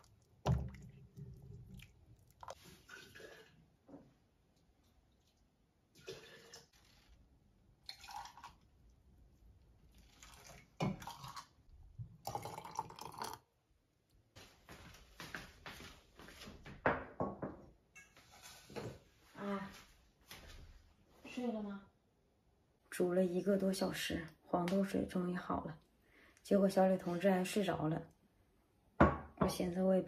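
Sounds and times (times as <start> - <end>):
liquid pouring into mug: 0.0 - 3.6, 7.8 - 8.7, 10.1 - 13.5.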